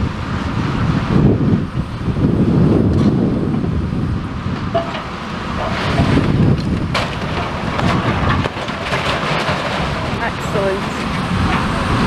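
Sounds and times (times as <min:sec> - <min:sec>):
wind buffeting microphone: 0:00.0 - 0:12.0
excavator diesel engine running: 0:03.2 - 0:12.0.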